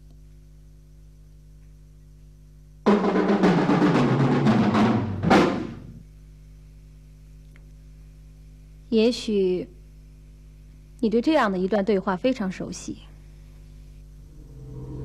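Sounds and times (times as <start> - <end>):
low steady hum: 0.0 - 2.9, 5.8 - 15.0
drum roll: 2.8 - 6.0, 14.2 - 15.0.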